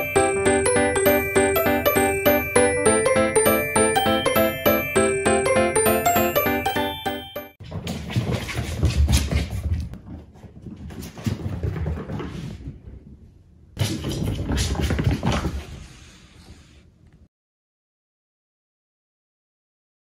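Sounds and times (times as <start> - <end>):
cat paws scrabbling on floor: 7.6 - 12.8.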